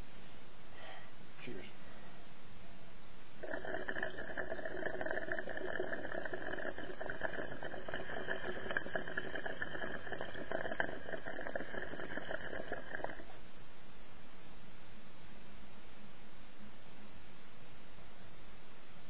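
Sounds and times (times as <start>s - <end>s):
water bubbling through glass: 3.4s - 13.4s.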